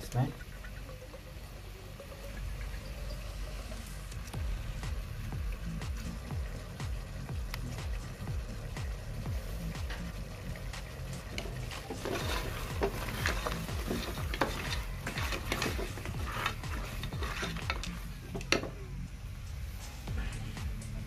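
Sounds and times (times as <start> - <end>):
meat sizzling: 1.0 - 18.8
wooden spoon scraping a pot: 11.3 - 18.7.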